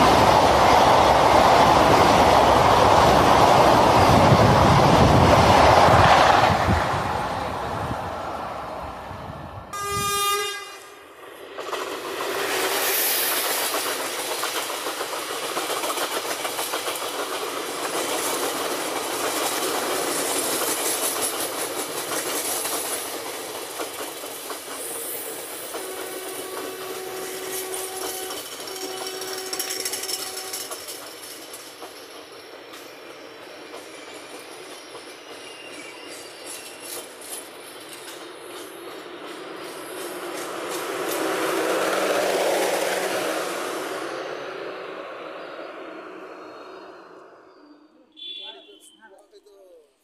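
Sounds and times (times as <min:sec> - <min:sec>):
train passing with rail clatter: 0:00.0 - 0:49.9
train horn blast: 0:09.7 - 0:11.0, 0:25.8 - 0:30.7, 0:48.1 - 0:49.1.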